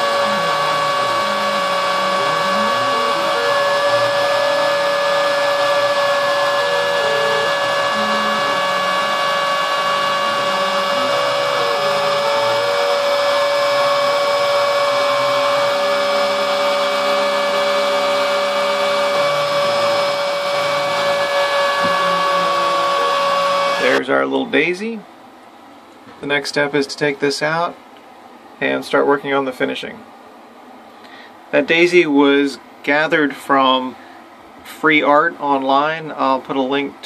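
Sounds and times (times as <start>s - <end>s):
router motor whining: 0.0s - 24.0s
stepper motors humming: 0.0s - 24.0s.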